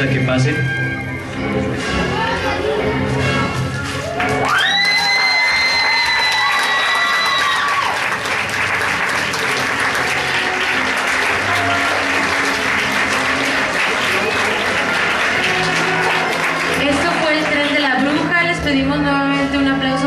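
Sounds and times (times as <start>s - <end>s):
large audience applauding: 3.8s - 18.4s.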